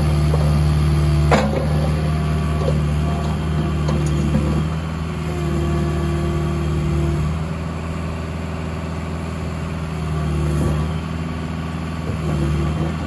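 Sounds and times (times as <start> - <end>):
hydraulic whine: 0.0 - 7.4
excavator diesel engine running: 0.0 - 13.0.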